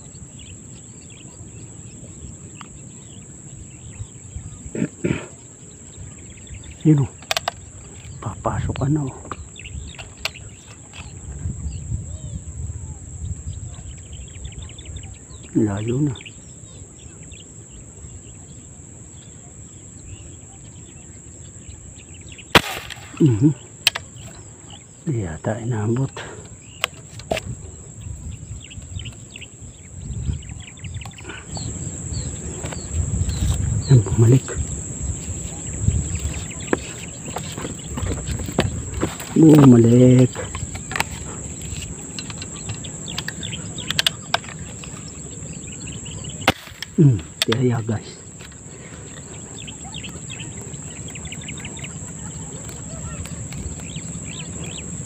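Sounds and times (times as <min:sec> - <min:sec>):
faint bird chirps: 0:00.0 - 0:55.0
high-pitched insect drone: 0:00.0 - 0:55.0
loud airgun shot: 0:22.5 - 0:24.0, 0:46.4 - 0:47.5
faint clicks: 0:40.2 - 0:45.2.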